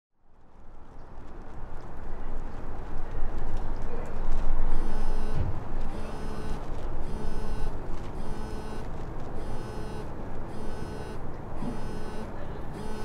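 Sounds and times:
car warning chime beeping: 4.7 - 8.8, 9.4 - 13.0.

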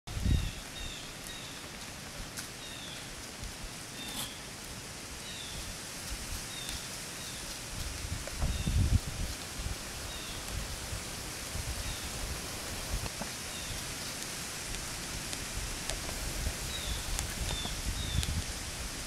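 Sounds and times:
steady hiss: 0.1 - 19.0.

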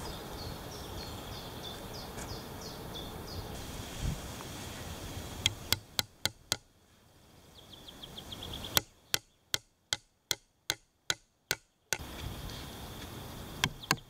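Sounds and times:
hammer striking nail into wood: 5.4 - 6.6, 8.8 - 12.0, 13.6 - 14.0.

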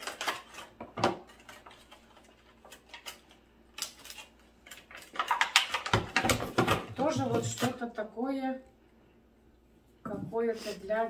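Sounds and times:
plastic packaging clicks: 0.0 - 6.8.

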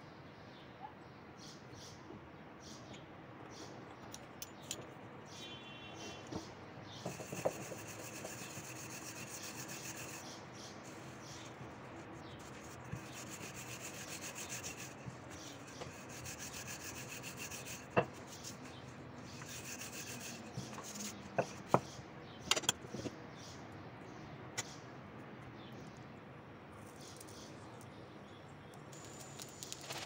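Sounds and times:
rolling pin rubbing dough: 7.0 - 21.9.

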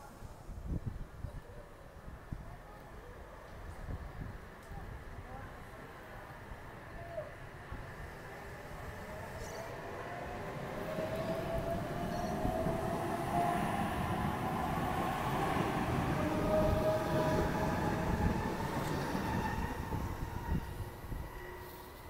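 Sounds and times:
electric train rumbling past: 5.9 - 22.0.

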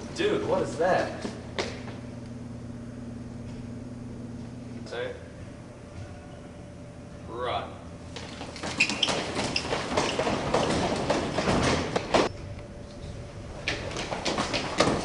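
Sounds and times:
footsteps running on tiles: 8.1 - 12.3, 13.1 - 15.0
shoe squeaks: 8.2 - 13.2.

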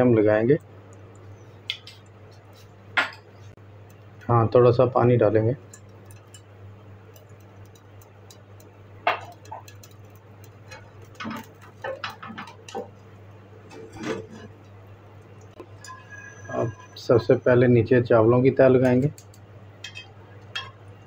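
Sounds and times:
steady low hum: 0.0 - 21.0
cooking pot knocks and clinks: 7.1 - 13.0, 19.8 - 20.8.

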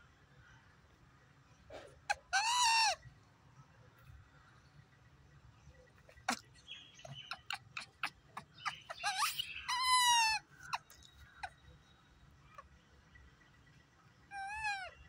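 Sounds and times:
baby monkey calling: 2.1 - 3.0, 6.2 - 6.4, 7.0 - 11.6, 14.3 - 15.0.

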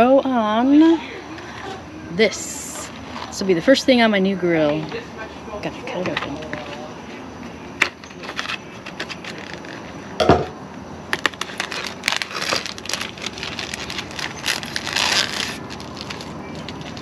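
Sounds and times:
plastic film crinkling: 8.2 - 10.0, 11.1 - 17.0.

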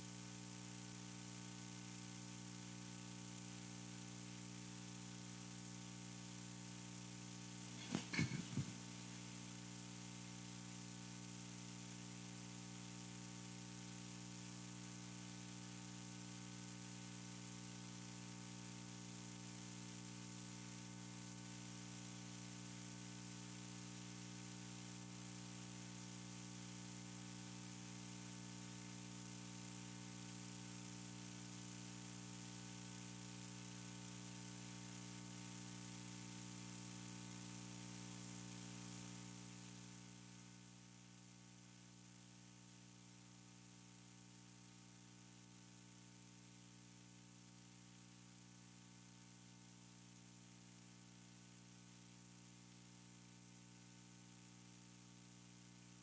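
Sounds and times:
electrical hum: 0.0 - 9.9
microphone hiss: 0.0 - 56.0.

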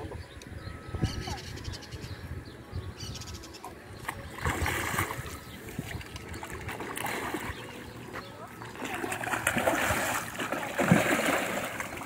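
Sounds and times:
fish splashing at water surface: 4.3 - 7.8, 8.6 - 12.0.

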